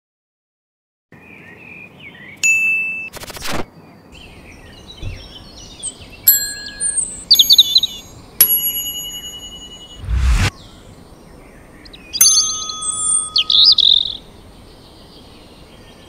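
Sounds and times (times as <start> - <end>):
bird chirps: 4.1 - 8.2, 10.0 - 16.0
bell-like dings: 8.4 - 10.0, 12.2 - 13.8
low rumble: 10.0 - 10.5
whoosh: 10.0 - 10.5.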